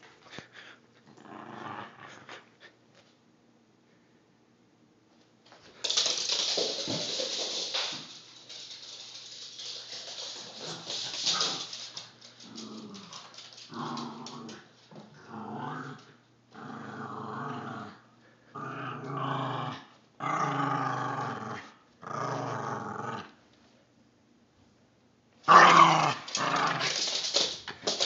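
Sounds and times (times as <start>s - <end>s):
dog claws clicking on wood floor: 5.5s - 15.1s, 25.5s - 28.0s
small dog growling: 9.6s - 23.4s.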